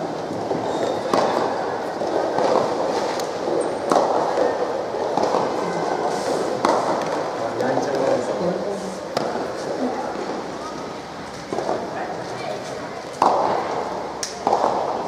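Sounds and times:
sharp knocks ringing in a hall: 0:00.0 - 0:03.0, 0:03.6 - 0:06.0, 0:13.2 - 0:15.0
murmur of voices: 0:00.0 - 0:15.0.

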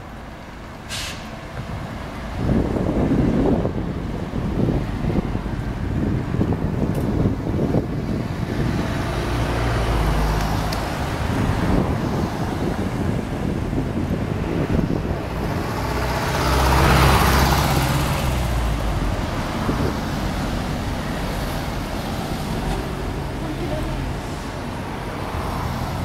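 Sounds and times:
cars driving past: 0:00.8 - 0:26.0.

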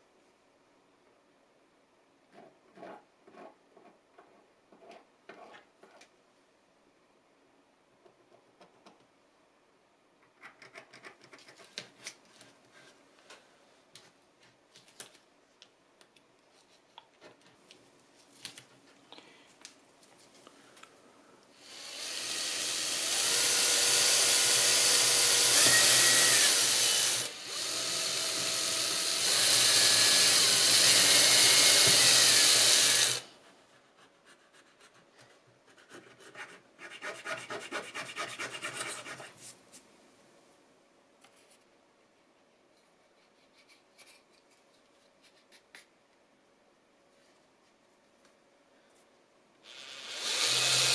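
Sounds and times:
pencil scratching and tapping: 0:10.2 - 0:12.2, 0:34.0 - 0:39.4
cordless drill drilling: 0:21.6 - 0:33.3, 0:49.6 - 0:50.9.

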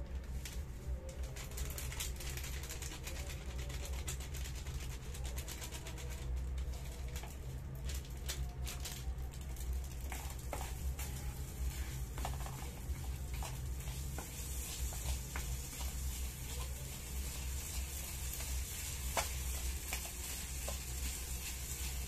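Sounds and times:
spatula scraping rice in pot: 0:10.1 - 0:22.0.

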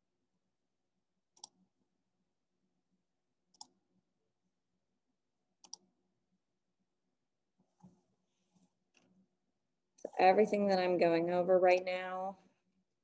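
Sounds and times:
faint computer mouse clicks: 0:01.4 - 0:01.6, 0:05.6 - 0:05.8.

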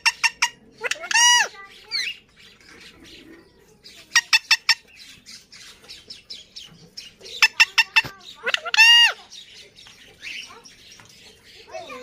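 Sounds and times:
parakeet soft chattering: 0:00.0 - 0:10.9.

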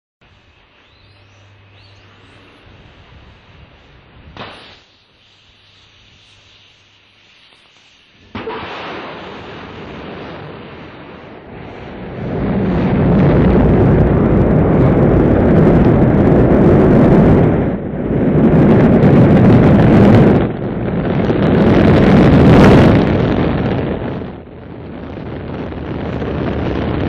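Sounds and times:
rocket ignition burst: 0:03.0 - 0:27.0
rocket engine roar: 0:08.1 - 0:27.0.

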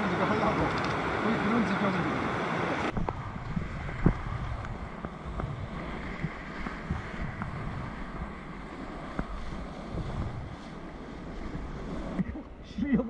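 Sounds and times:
whitewater rushing: 0:00.0 - 0:03.0
wind buffeting microphone: 0:00.0 - 0:12.9.

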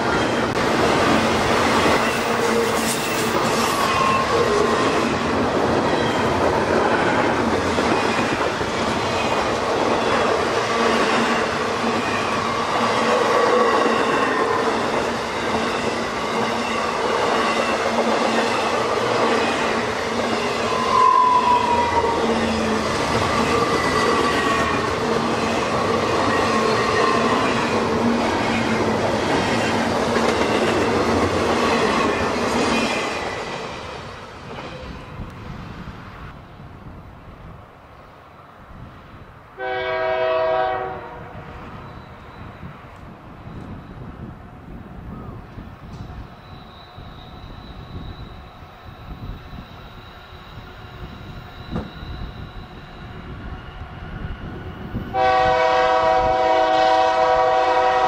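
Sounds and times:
freight train rumbling past: 0:00.0 - 0:58.0
train wheel squeals: 0:01.8 - 0:08.6, 0:09.2 - 0:27.8, 0:41.4 - 0:56.6.

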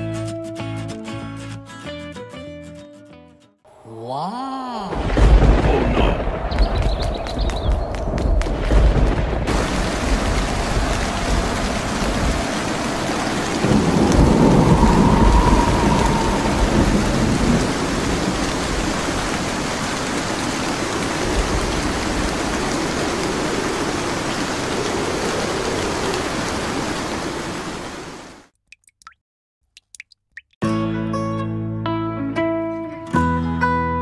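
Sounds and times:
steady rain: 0:04.6 - 0:28.5
rolling thunder: 0:04.9 - 0:27.5.

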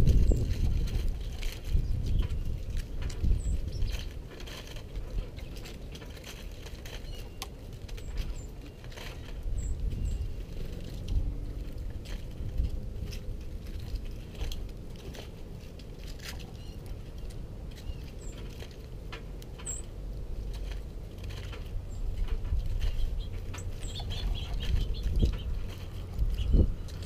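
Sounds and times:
birds pecking at seed: 0:00.0 - 0:27.0
steady low rumble: 0:00.0 - 0:27.0
high bird chirps: 0:22.8 - 0:27.0.

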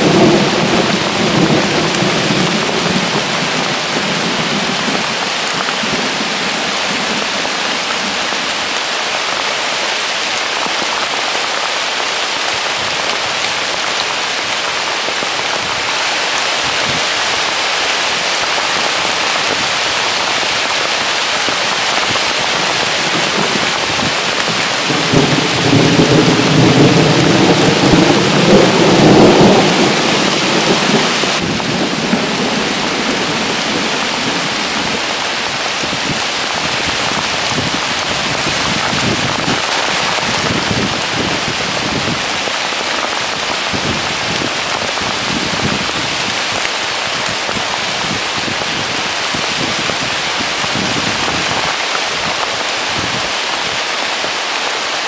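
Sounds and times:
thunder rumbling: 0:00.0 - 0:08.4, 0:18.1 - 0:51.8
heavy rain falling: 0:00.0 - 0:55.0.

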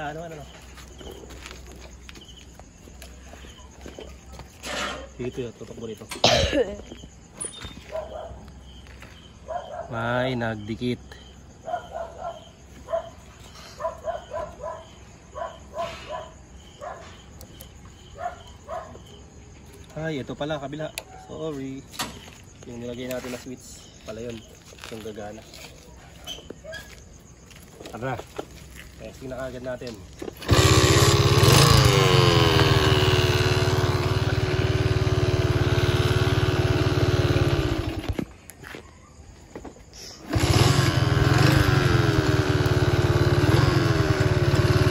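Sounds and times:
crickets chirping: 0:00.0 - 0:44.9
small motorcycle engine running: 0:30.2 - 0:38.3, 0:40.2 - 0:44.9.

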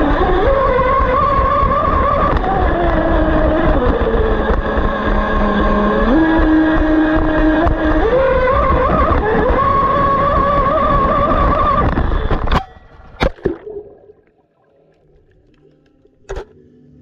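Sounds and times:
electric motor whining: 0:00.0 - 0:12.5
water rushing: 0:13.0 - 0:16.4.

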